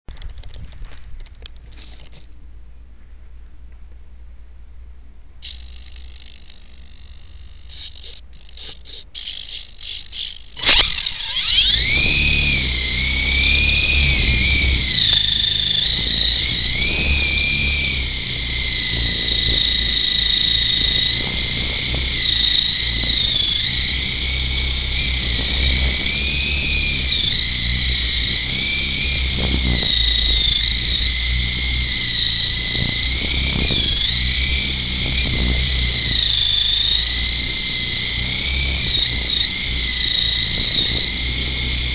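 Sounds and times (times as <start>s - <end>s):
model helicopter motor whine: 5.4s - 41.9s
wind buffeting microphone: 11.4s - 41.9s.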